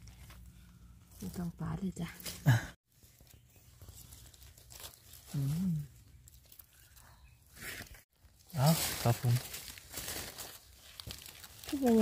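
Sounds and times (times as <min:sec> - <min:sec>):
rustling in dry leaves: 0:00.0 - 0:12.0.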